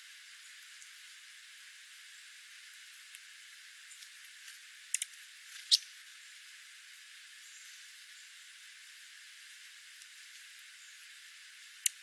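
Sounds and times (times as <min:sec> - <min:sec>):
faint steady hiss: 0:00.0 - 0:12.0
bird ticks: 0:04.9 - 0:05.9.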